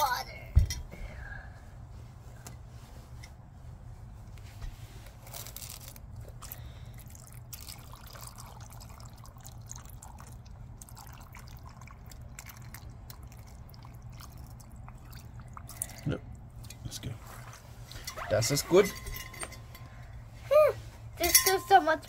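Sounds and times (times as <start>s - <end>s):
water trickling and splashing: 6.3s - 19.9s.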